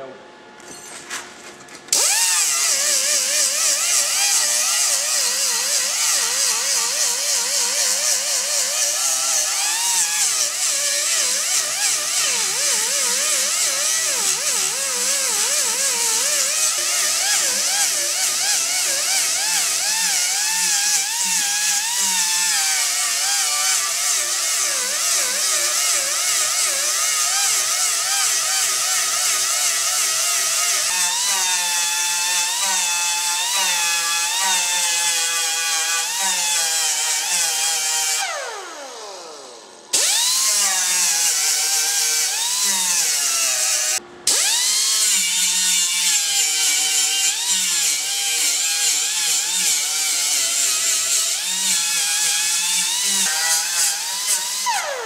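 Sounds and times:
angle grinder grinding metal: 0:01.9 - 0:55.0.

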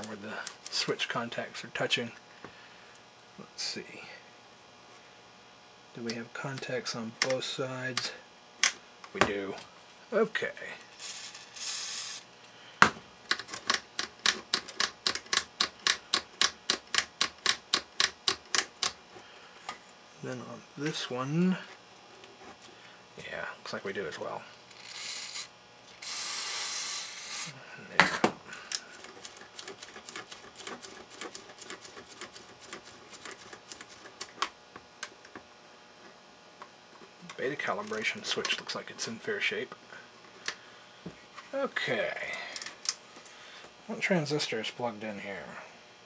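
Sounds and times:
rotary switch clicking: 0:13.3 - 0:19.0.

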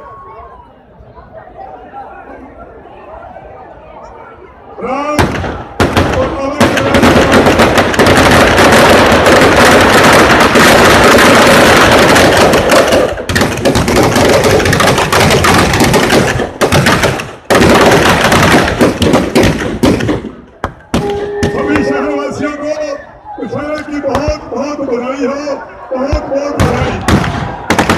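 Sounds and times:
firecrackers crackling: 0:05.2 - 0:21.8, 0:26.6 - 0:27.9.

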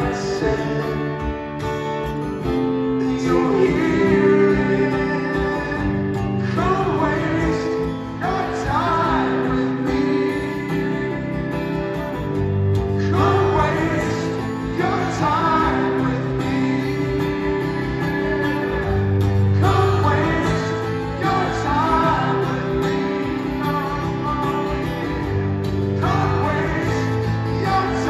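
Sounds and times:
acoustic guitars playing slow song: 0:00.0 - 0:28.0
voices singing: 0:03.0 - 0:28.0.

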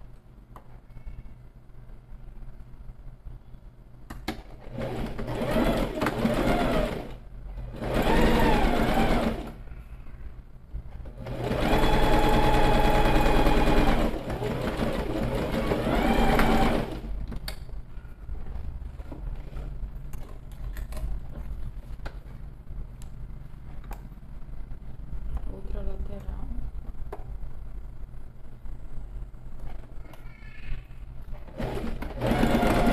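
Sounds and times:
sewing machine motor whine: 0:04.8 - 0:09.6, 0:11.2 - 0:17.1, 0:31.6 - 0:32.9.

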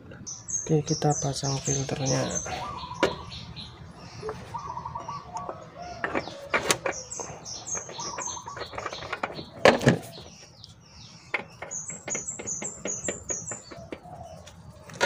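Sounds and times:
bird chirping: 0:00.0 - 0:15.0.

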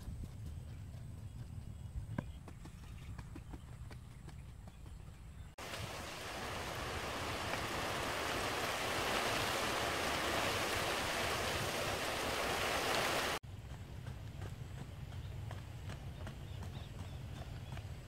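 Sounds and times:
flowing water rushing: 0:05.6 - 0:13.4.

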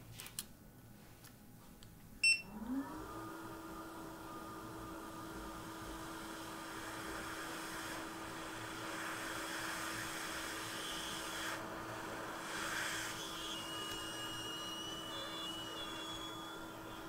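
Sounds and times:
hot air station hissing: 0:06.8 - 0:17.0.

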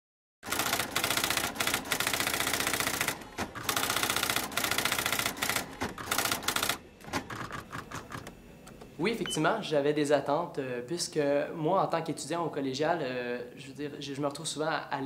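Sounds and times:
typewriter typing: 0:00.4 - 0:08.3.

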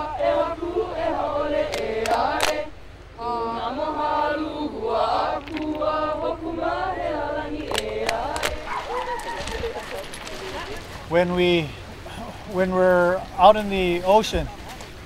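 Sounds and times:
group chanting together: 0:00.0 - 0:09.0.

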